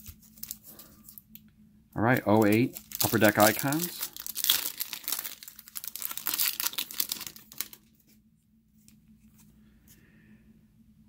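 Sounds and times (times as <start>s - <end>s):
foil wrapper tearing and crinkling: 0.0s - 1.2s, 2.1s - 7.9s.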